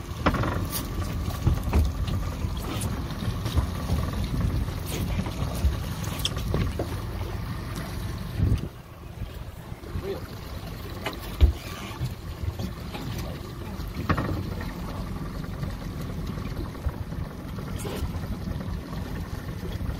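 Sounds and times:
boat engine rumble: 0.0s - 19.9s
water against hull: 0.0s - 19.9s
wind on microphone: 8.2s - 10.1s.

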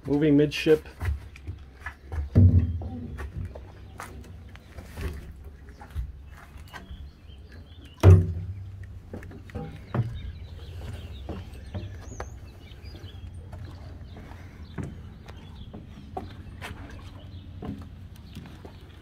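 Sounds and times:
birds chirping faintly: 0.0s - 19.0s
footsteps on deck: 0.0s - 19.0s
heavy thump with low ring: 8.0s - 8.6s.

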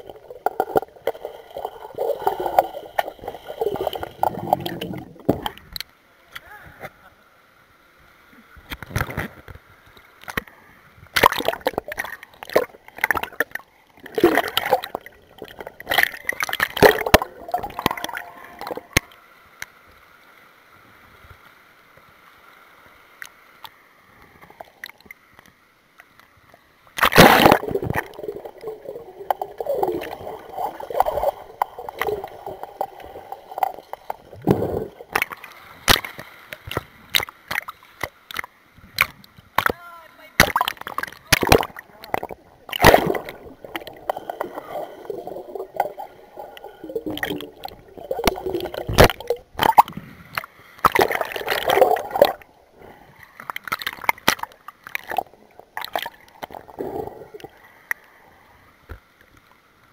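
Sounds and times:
underwater pool splashing and bubbling: 0.0s - 5.8s, 11.1s - 19.2s, 27.0s - 39.7s, 40.4s - 58.1s.

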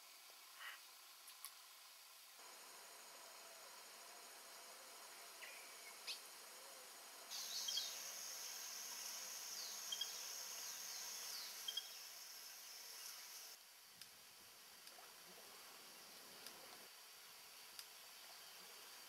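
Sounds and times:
high insect chorus: 2.4s - 13.6s
bird whistles and chirps: 7.4s - 8.0s.

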